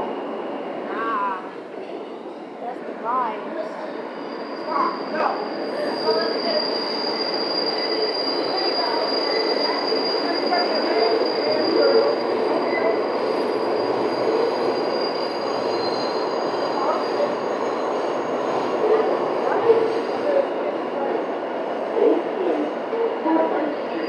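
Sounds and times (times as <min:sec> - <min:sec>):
high-pitched wheel squeal: 0:04.1 - 0:20.2.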